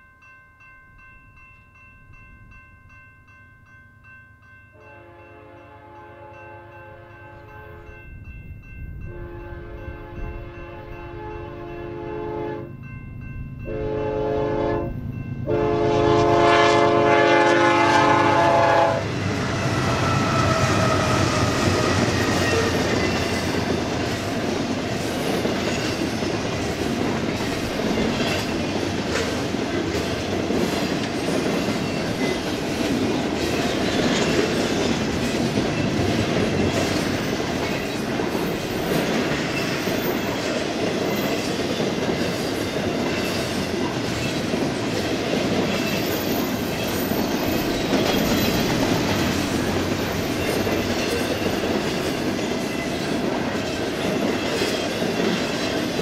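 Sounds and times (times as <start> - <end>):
locomotive air horn blasts: 4.8 - 7.8, 9.1 - 12.7, 13.7 - 19.1
train wheels rumbling on rails: 7.8 - 56.0.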